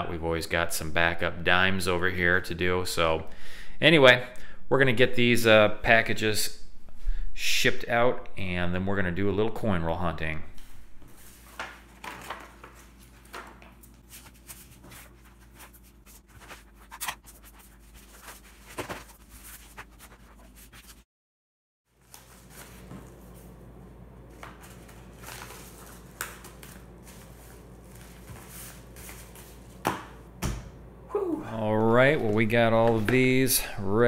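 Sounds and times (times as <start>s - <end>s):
paper rustling and sliding: 11.1s - 21.1s, 22.0s - 23.5s, 24.3s - 29.8s.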